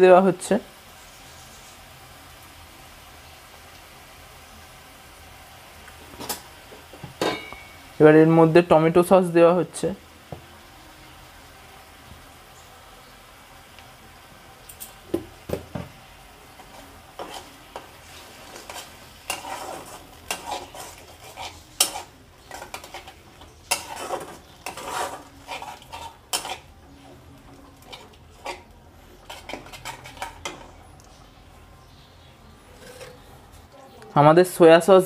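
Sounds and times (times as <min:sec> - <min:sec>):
spatula scraping and clinking on pan: 0:07.2 - 0:07.9, 0:16.6 - 0:30.9, 0:32.7 - 0:33.6.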